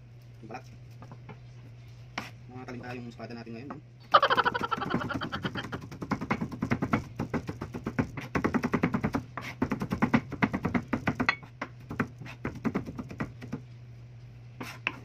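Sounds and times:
steady low hum: 0.0s - 15.0s
knife chopping on cutting board: 5.6s - 13.6s.

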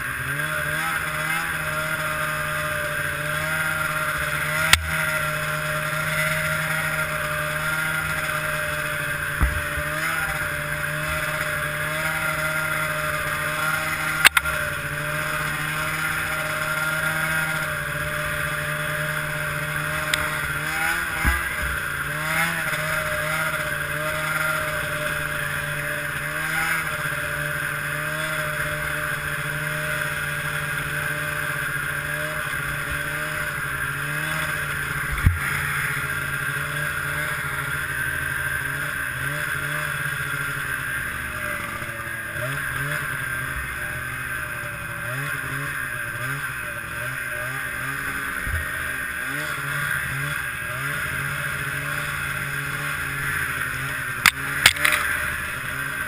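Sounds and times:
snowmobile engine running: 0.0s - 56.0s
sharp knocks: 9.4s - 10.0s.

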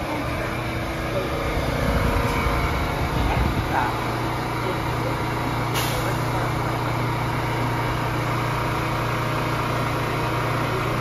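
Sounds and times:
subway train equipment humming: 0.0s - 11.0s.

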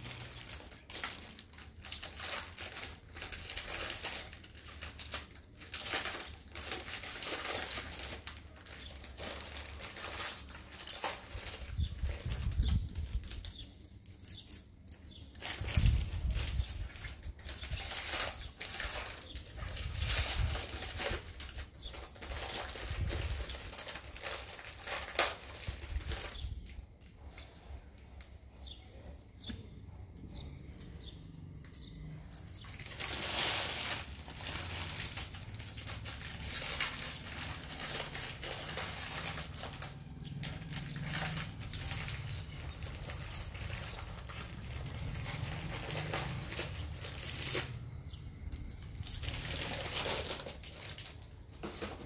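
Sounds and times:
glass bangles clicking: 0.0s - 18.5s, 30.6s - 33.2s, 35.0s - 49.9s.

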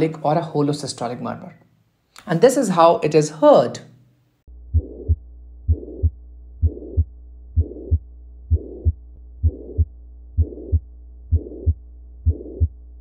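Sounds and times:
heartbeat: 4.6s - 13.0s
heart murmur: 4.7s - 12.8s.

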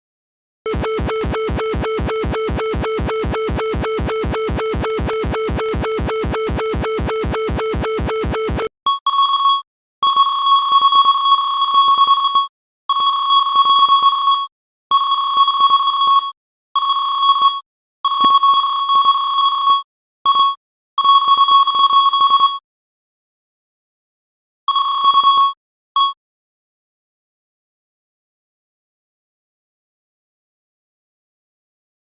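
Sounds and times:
pulsing buzz: 0.7s - 8.7s.

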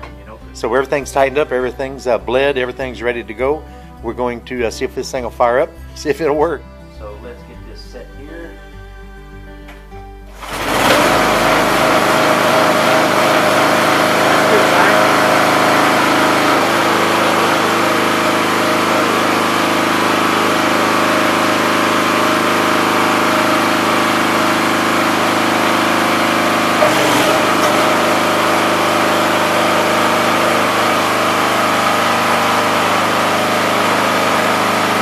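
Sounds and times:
small engine running: 10.4s - 35.0s.

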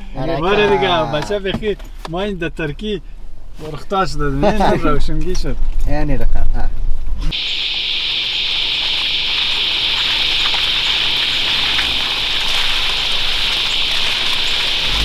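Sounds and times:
car engine running low: 7.3s - 15.0s
rain falling through forest: 7.3s - 15.0s.

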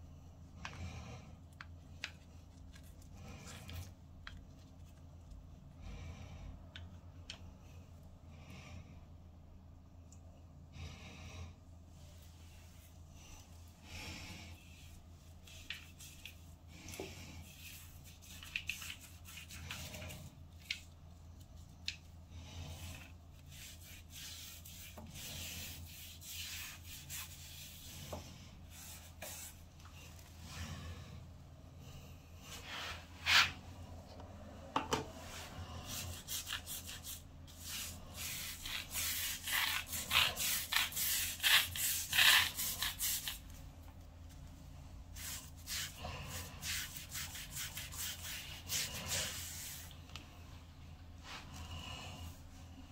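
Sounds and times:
steady low hum: 0.0s - 52.9s
rubbing and scratching: 14.6s - 21.9s, 22.7s - 29.9s, 35.8s - 43.5s, 45.2s - 50.0s.

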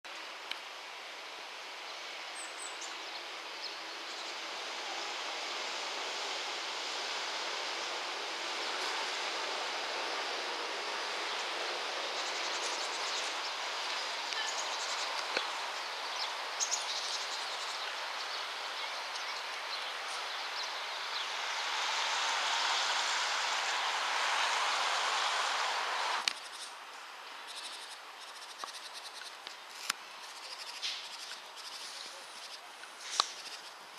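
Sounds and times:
outdoor background hiss: 0.1s - 33.9s.

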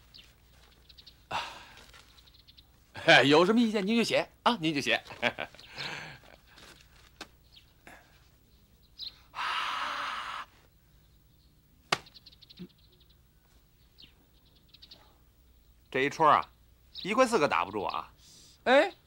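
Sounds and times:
paper rustling: 0.0s - 1.0s, 1.6s - 2.4s, 4.9s - 7.4s.

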